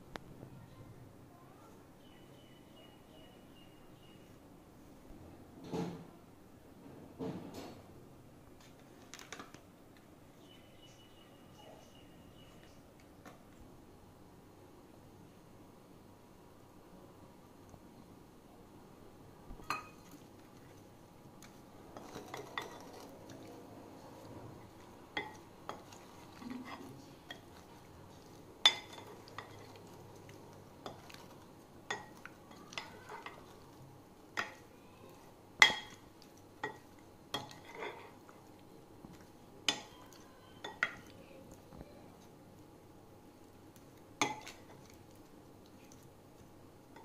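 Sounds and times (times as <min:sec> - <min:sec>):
soft wet stirring: 0:19.5 - 0:47.0.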